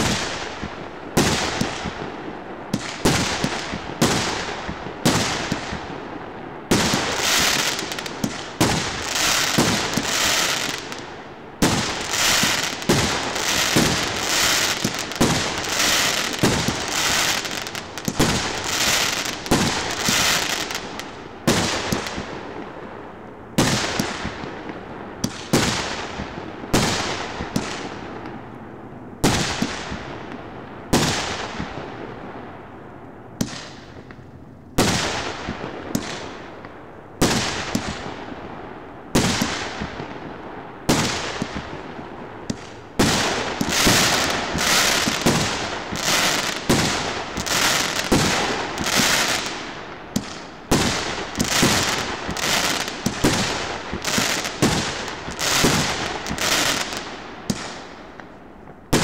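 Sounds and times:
fireworks crackling and hiss: 0.0 - 32.8, 33.4 - 59.0.

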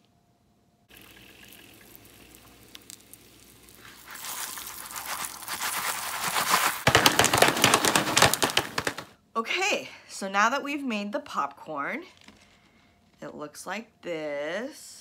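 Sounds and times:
popcorn sizzling in foil pan: 0.9 - 9.1
popcorn kernels popping: 0.9 - 9.2.

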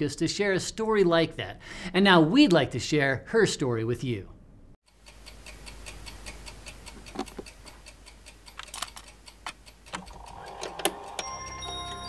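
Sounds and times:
clock ticking: 4.8 - 12.0.

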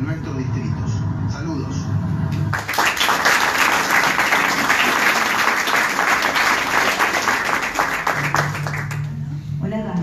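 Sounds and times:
audience applauding: 2.5 - 9.2.

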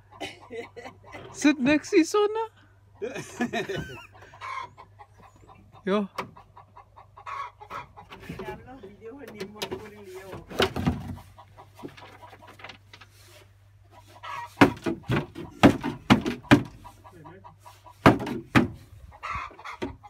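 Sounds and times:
chickens clucking: 0.0 - 20.0
loud sharp knocks: 14.6 - 16.8, 18.0 - 18.8.

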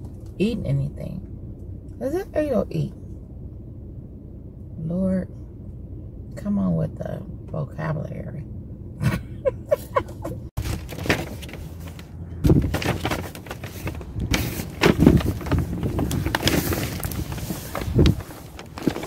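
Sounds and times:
vehicle noise: 0.0 - 19.0.

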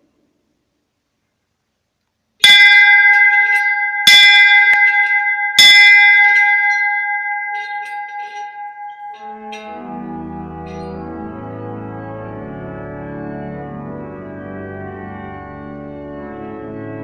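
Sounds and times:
bell ringing: 2.4 - 11.5.

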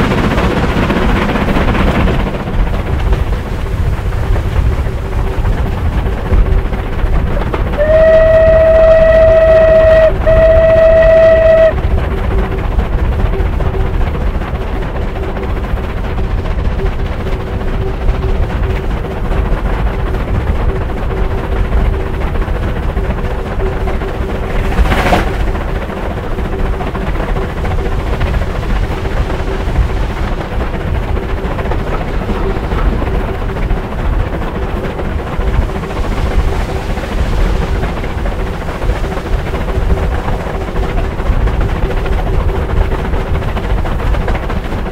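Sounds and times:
steam locomotive exhaust: 0.0 - 44.9
steam locomotive whistle: 7.5 - 12.0.

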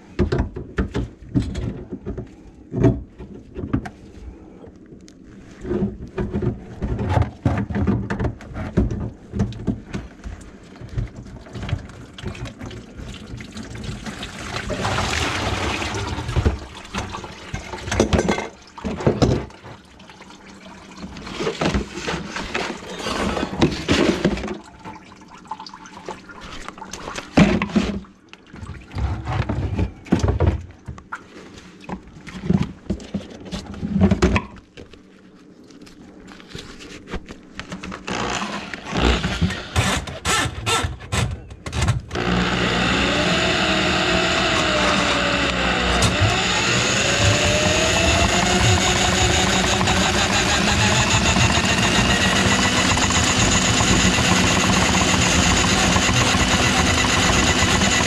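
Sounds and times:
drain cleaning machine running: 42.2 - 58.0.

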